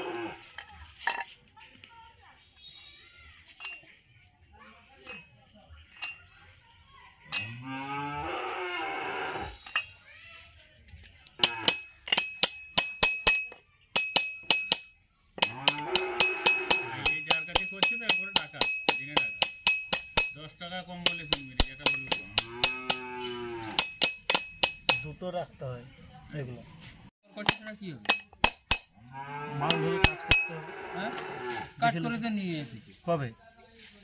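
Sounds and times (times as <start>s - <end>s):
cow mooing: 7.6s - 9.5s, 15.4s - 17.0s, 22.4s - 23.8s, 29.0s - 31.8s
hammer striking metal: 11.4s - 25.2s, 27.3s - 29.0s, 29.6s - 30.6s.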